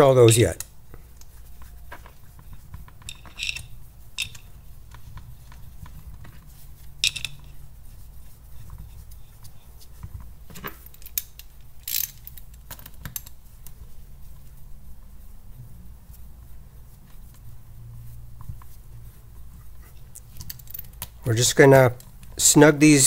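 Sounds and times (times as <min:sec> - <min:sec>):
low steady hum: 0:00.0 - 0:23.0
metal bolts clicking and clinking: 0:03.0 - 0:04.5, 0:07.0 - 0:07.6, 0:20.3 - 0:21.1.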